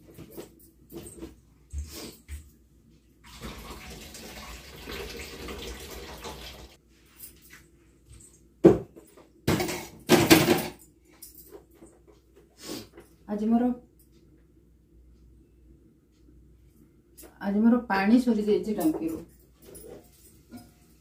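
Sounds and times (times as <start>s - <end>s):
kitchen tap running: 3.2s - 6.8s
dishes clattering at sink: 9.5s - 10.8s.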